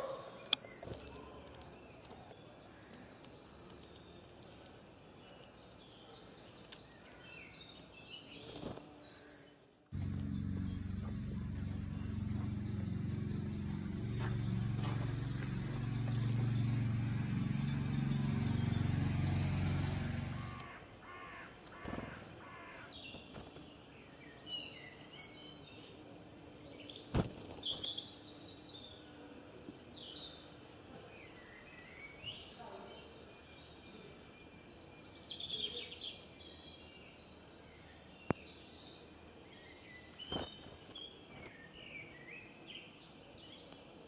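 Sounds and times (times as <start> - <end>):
birds singing and chirping: 0.0 - 44.0
steady low hum: 10.0 - 20.8.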